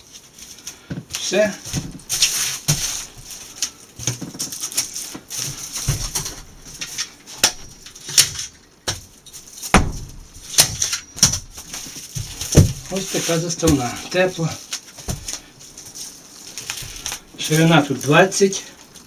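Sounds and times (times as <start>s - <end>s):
foil rustling and crinkling: 0.0s - 19.0s
wooden frame knocks: 9.7s - 11.5s, 12.2s - 12.9s.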